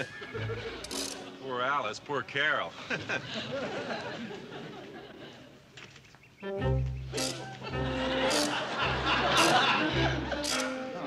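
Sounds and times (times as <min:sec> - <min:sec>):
background music low notes: 0:06.4 - 0:11.0.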